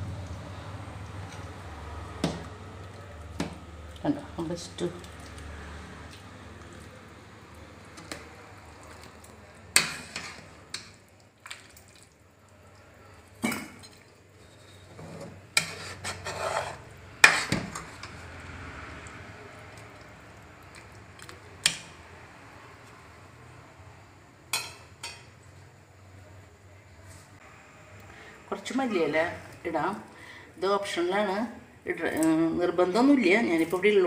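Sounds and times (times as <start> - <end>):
ladle scraping pan: 9.7 - 10.9, 14.4 - 18.2.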